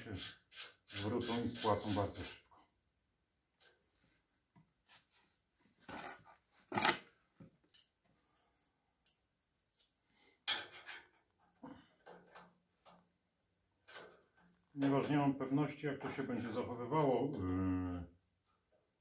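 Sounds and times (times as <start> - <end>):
metallic clinks of spanner and bolts: 5.9 - 7.1, 7.7 - 11.1, 13.8 - 15.2.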